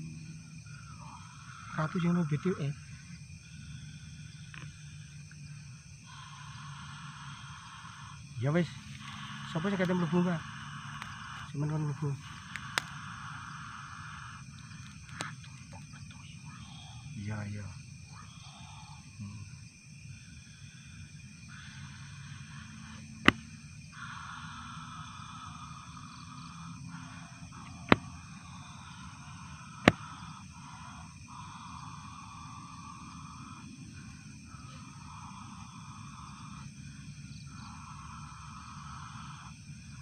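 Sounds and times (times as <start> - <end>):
night insects calling: 0.0 - 40.0
sharp knocks: 23.2 - 23.5.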